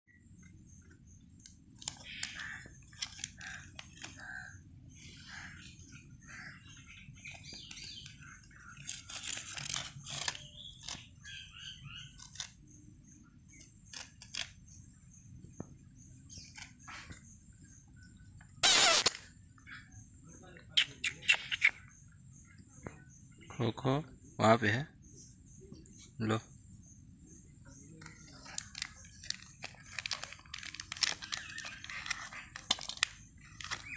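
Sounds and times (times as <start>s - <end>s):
small birds chirping: 0.1s - 33.9s
plastic wrapper rustling: 28.4s - 33.9s.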